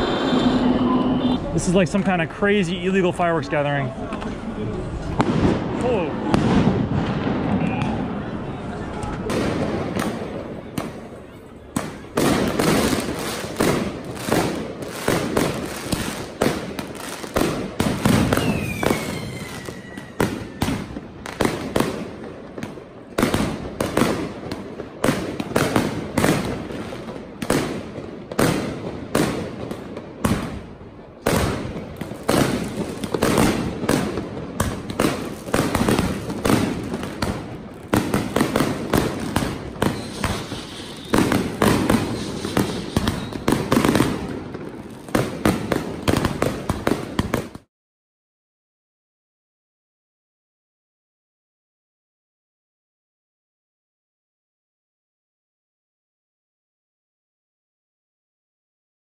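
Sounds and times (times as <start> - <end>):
falling firework whistle: 0.0 - 1.6, 18.0 - 21.0, 39.2 - 44.1
firecrackers banging and crackling: 0.0 - 47.7.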